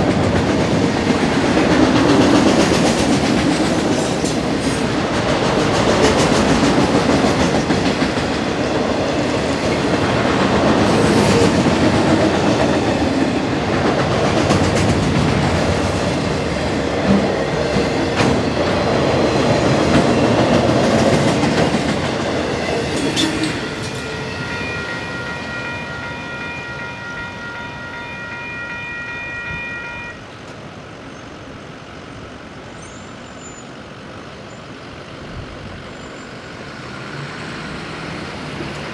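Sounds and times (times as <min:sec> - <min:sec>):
freight train clattering past: 0:00.0 - 0:29.0, 0:35.5 - 0:38.9
crossing signal bell ringing: 0:23.8 - 0:30.2.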